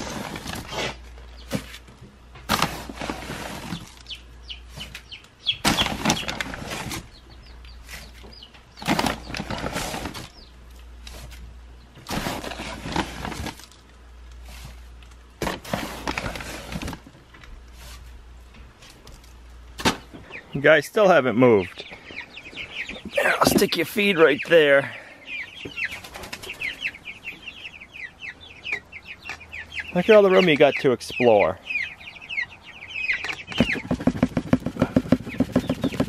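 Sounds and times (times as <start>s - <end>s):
paper sack crinkling: 2.5s - 4.1s, 5.6s - 7.1s, 8.8s - 10.3s, 12.1s - 13.8s, 15.4s - 17.1s.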